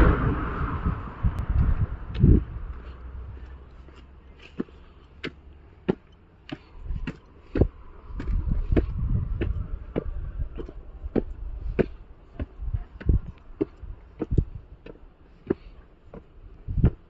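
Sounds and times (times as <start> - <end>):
low rumble: 0.0 - 3.9, 7.6 - 14.7
footsteps on concrete steps: 1.6 - 17.0.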